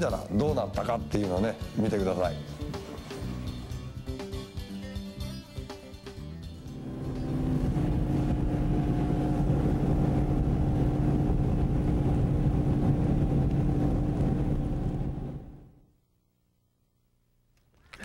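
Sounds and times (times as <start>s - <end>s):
outboard motor drone: 6.6s - 15.7s.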